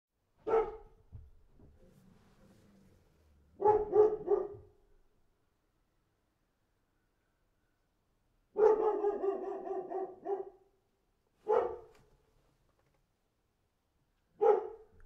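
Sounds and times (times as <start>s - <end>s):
dog barking: 0.4s - 1.0s, 3.5s - 4.9s, 8.5s - 10.8s, 11.4s - 12.0s, 14.3s - 15.0s.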